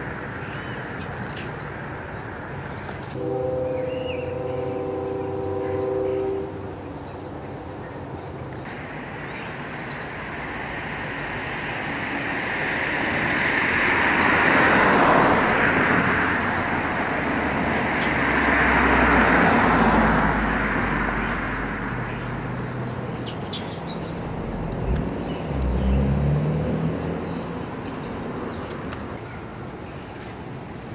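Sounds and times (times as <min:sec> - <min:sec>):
cars passing: 0:00.0 - 0:30.9
low engine rumble: 0:20.9 - 0:29.2.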